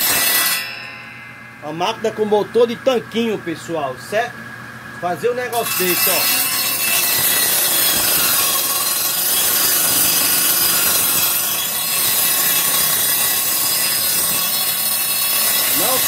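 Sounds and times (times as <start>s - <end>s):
table saw ripping wood: 0.0s - 0.9s, 5.6s - 16.0s.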